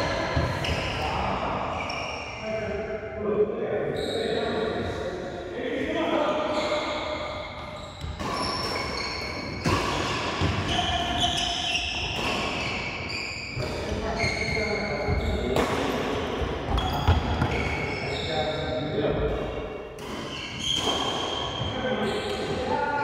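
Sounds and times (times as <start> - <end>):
shoes squeaking on court floor: 6.4 - 22.6
racket striking shuttlecock: 8.0 - 11.2.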